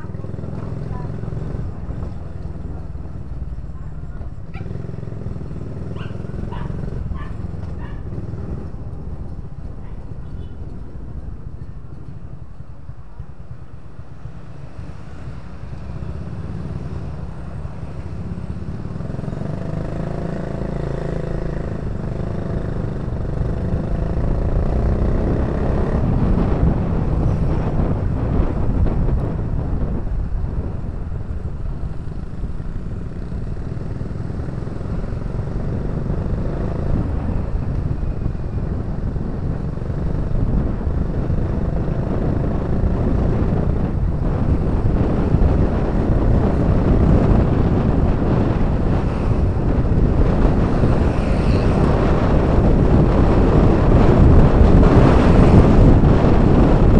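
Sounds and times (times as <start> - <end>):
motorcycle engine running: 0.0 - 56.9
road and wind noise: 0.0 - 56.9.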